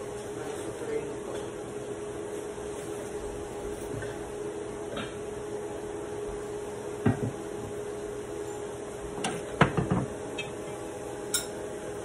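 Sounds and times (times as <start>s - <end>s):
steady hum: 0.0s - 12.0s
knock: 7.0s - 7.4s.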